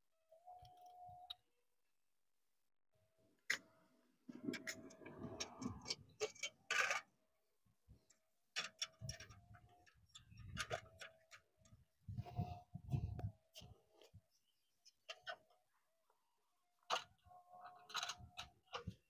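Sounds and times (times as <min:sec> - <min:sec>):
wind rumble on microphone: 0:11.6 - 0:13.8.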